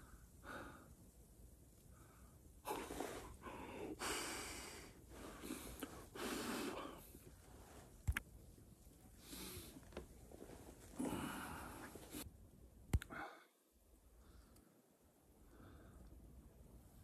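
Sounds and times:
man breathing hard: 0.0s - 1.0s, 1.9s - 7.3s, 11.0s - 12.2s.

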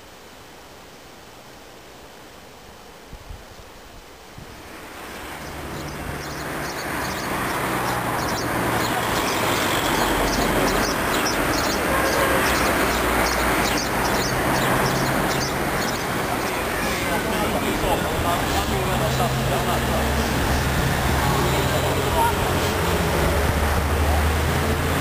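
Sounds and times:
dense synth wash: 9.9s - 25.0s.

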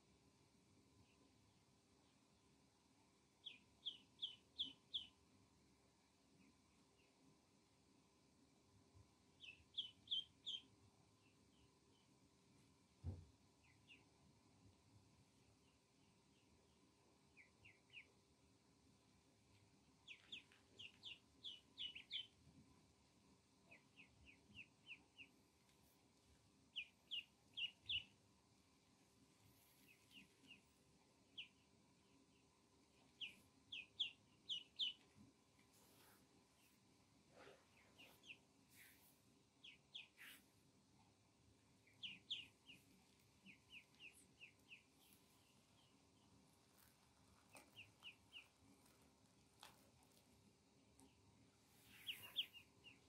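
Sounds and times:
ducklings peeping: 3.4s - 5.2s, 9.3s - 12.1s, 13.6s - 14.2s, 15.4s - 18.3s, 20.0s - 22.4s, 23.6s - 28.2s, 29.4s - 36.8s, 37.6s - 40.6s, 41.6s - 50.3s, 51.8s - 53.0s.

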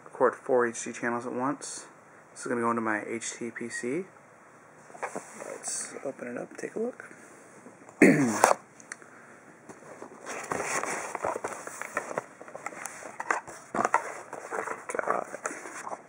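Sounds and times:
cardboard and paper rustling: 4.9s - 5.8s, 9.7s - 16.0s
cardboard scrape: 5.0s - 5.8s, 9.8s - 16.0s.

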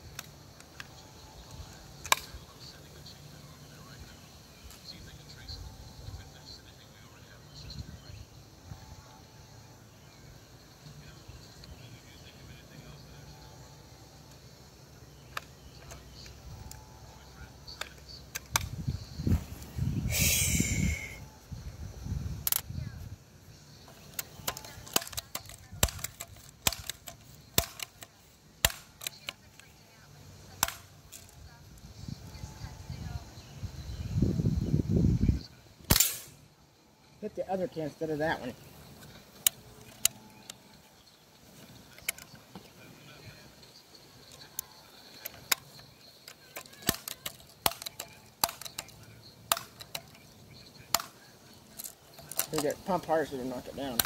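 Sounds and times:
pump lever clicks: 24.0s - 29.4s, 30.6s - 31.3s, 46.3s - 50.2s.

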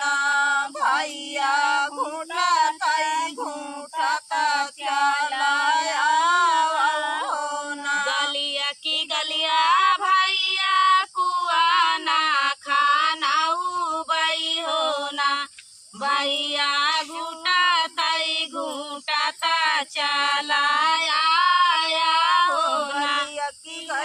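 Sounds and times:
women singing folk song: 0.0s - 24.0s.

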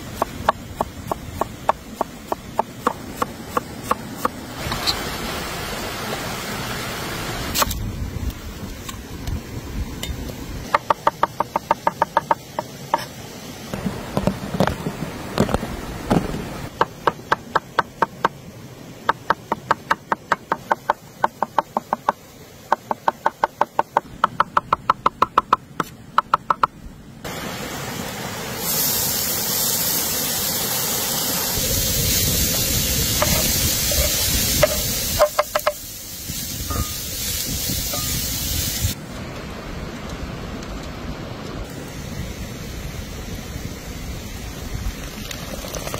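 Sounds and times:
food sizzling in frying pan: 27.3s - 39.0s.

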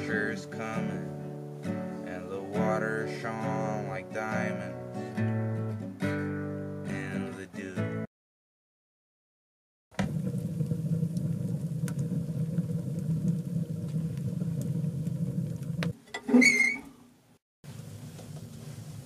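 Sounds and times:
wood fire roaring and crackling: 10.0s - 16.8s, 17.7s - 19.0s
squeaky creak: 16.1s - 17.0s.

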